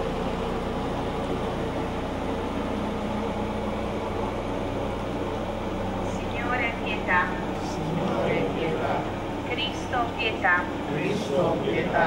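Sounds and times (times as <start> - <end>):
low motor hum: 0.0 - 12.0.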